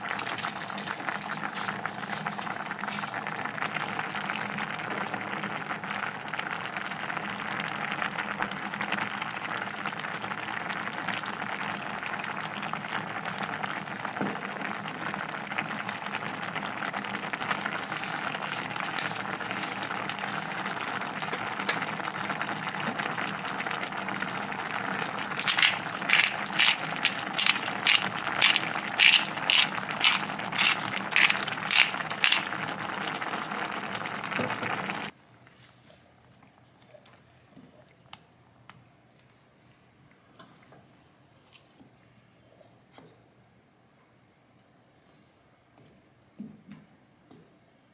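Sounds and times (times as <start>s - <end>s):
sauce bubbling in a frying pan: 0.0s - 35.2s
pepper mill grinding clicks: 25.4s - 32.6s.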